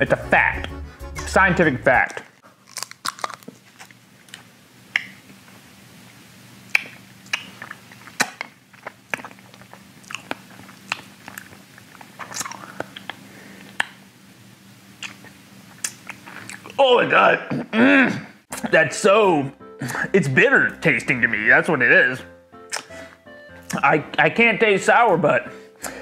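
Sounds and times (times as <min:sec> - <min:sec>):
hard candy clicking in mouth: 0:02.1 - 0:03.6.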